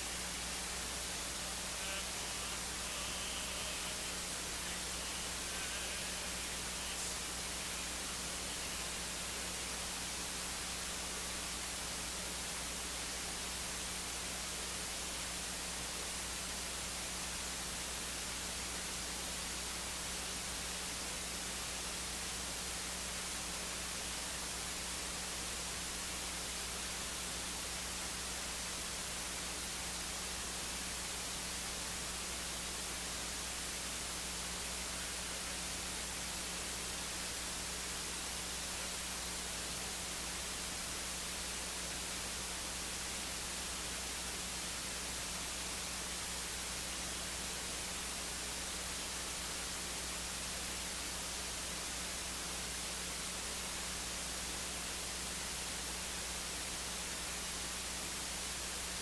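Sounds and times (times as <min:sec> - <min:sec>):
steady hiss: 0:00.0 - 0:59.0.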